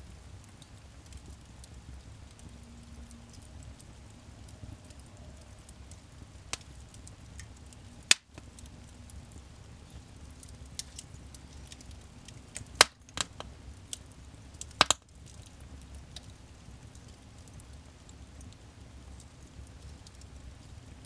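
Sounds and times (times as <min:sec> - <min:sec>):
fire crackling: 0:00.0 - 0:21.0
wood fire burning: 0:00.0 - 0:21.0
loud sharp pops from fire: 0:06.5 - 0:16.4.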